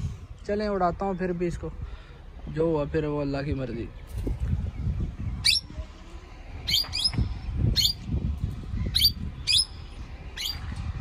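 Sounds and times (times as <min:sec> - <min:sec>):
parakeet shrill calls: 0:05.4 - 0:05.7, 0:06.6 - 0:08.0, 0:08.8 - 0:10.6.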